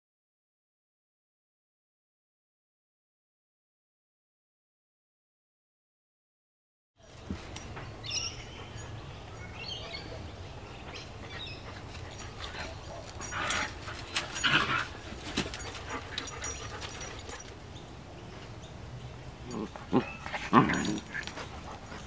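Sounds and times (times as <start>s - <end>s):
puppies whining: 8.1s - 17.6s, 19.5s - 22.0s
puppies yipping: 8.1s - 17.6s.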